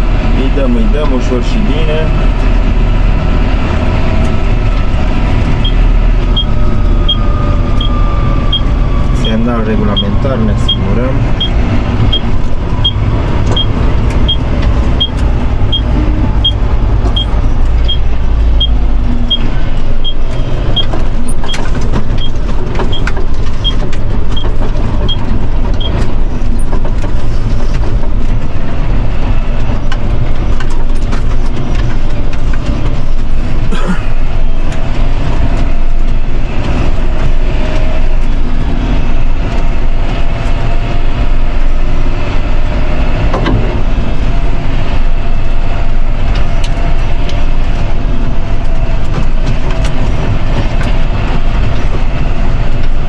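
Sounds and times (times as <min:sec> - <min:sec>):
tractor diesel engine running: 0:00.0 - 0:53.0
turn signal ticking: 0:05.5 - 0:26.1.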